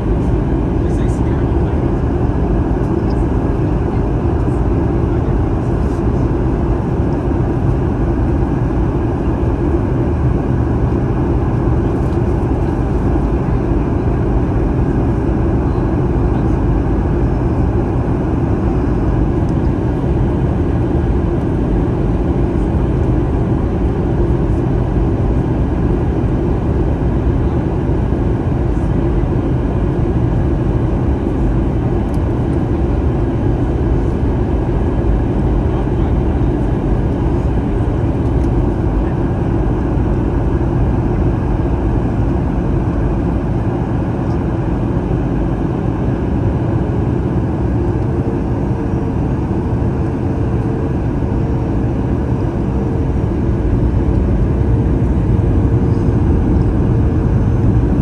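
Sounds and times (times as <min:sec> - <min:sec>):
airplane cabin roar: 0:00.0 - 0:58.0.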